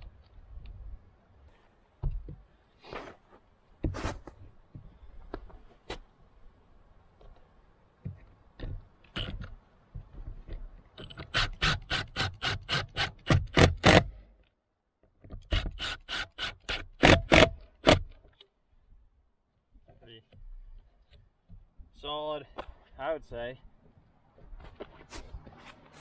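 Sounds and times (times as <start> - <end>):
impact driver hammering screw: 11.1 - 14.1, 15.4 - 18.1.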